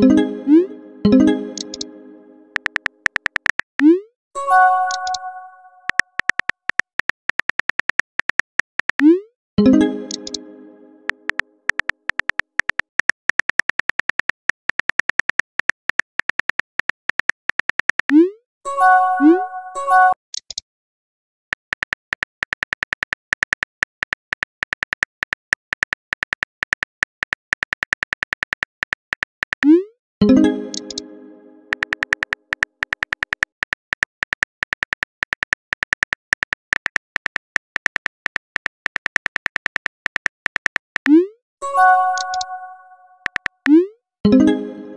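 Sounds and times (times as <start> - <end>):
phone keyboard clicks: 2.5 - 3.8, 5.9 - 9.0, 10.1 - 10.4, 11.1 - 18.2, 30.7 - 31.0, 31.7 - 41.1, 43.2 - 43.7
phone keyboard taps: 2.6 - 3.7.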